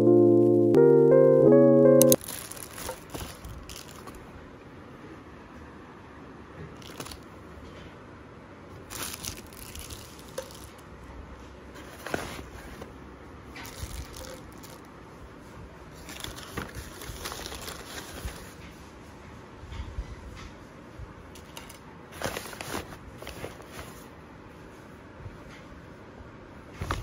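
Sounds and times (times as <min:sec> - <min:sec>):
paper bag rustling: 0:02.2 - 0:04.2, 0:06.8 - 0:07.2, 0:08.8 - 0:10.8, 0:11.8 - 0:13.0, 0:13.6 - 0:14.8, 0:16.0 - 0:18.6, 0:22.1 - 0:24.1.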